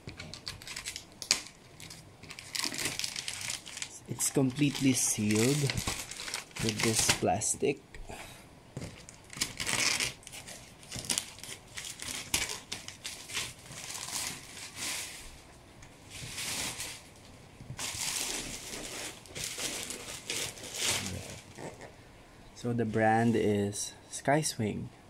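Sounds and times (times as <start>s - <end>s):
plastic wrapping tearing and crinkling: 0.1s - 7.3s, 8.8s - 15.4s, 16.1s - 21.8s.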